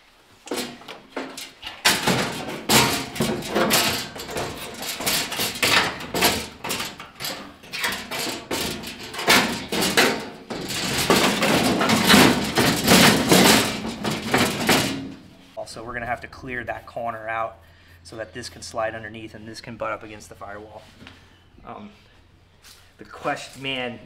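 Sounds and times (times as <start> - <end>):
metal panel knocking and clattering: 0.5 - 15.3
sheet metal scraping and flexing: 0.5 - 15.5.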